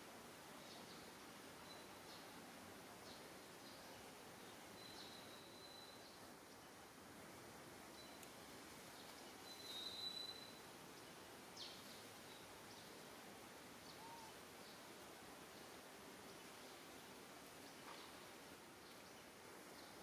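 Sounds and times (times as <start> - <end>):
outdoor background hiss: 0.0 - 20.0
thin high whistle call: 4.8 - 6.1, 9.4 - 10.6.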